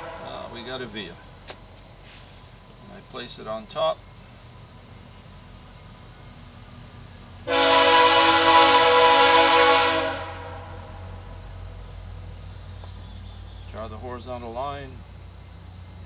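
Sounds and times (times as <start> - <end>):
train horn blast: 0.0 - 1.0, 7.4 - 11.3.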